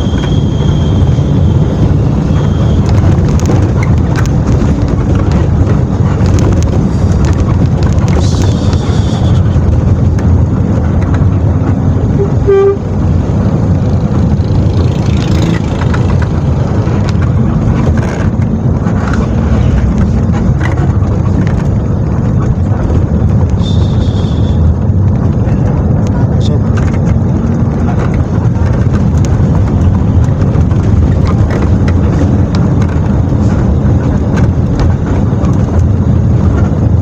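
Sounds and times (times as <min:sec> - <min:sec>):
bus horn toot: 0:00.0 - 0:03.2, 0:08.2 - 0:09.5, 0:12.0 - 0:13.1, 0:23.6 - 0:24.7
bus engine and road noise drone: 0:00.0 - 0:37.0.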